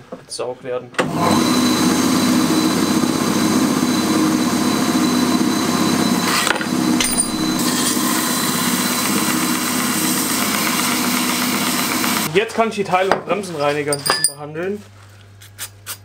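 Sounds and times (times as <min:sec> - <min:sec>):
belt sander running: 0:01.0 - 0:12.3
steel grinding on sanding belt: 0:06.2 - 0:12.3.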